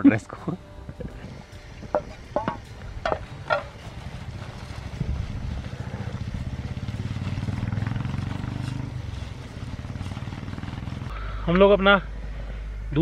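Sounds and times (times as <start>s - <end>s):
low pulsing engine drone: 0.0s - 13.0s.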